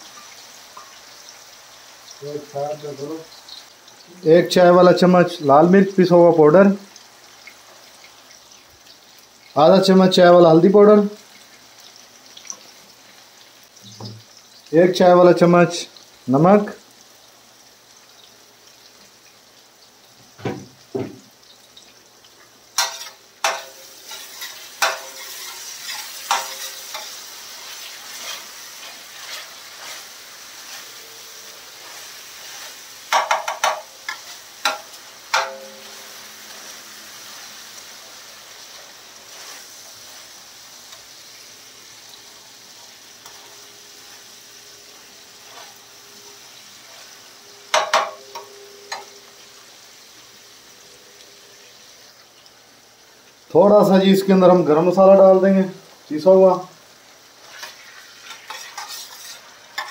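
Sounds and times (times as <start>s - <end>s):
vegetables sizzling in oil: 0.0s - 59.9s
metal spatula scraping pan: 22.8s - 31.1s, 43.2s - 43.7s, 45.4s - 45.9s, 57.4s - 59.9s.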